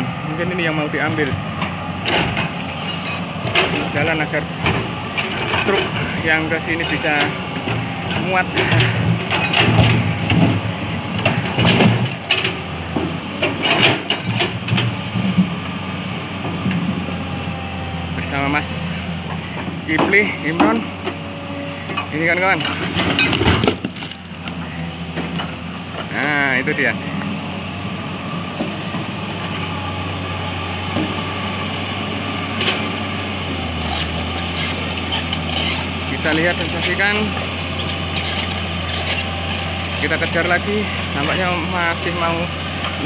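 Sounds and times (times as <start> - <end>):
excavator diesel engine humming: 0.0 - 43.0
knocks and scrapes: 33.8 - 40.1.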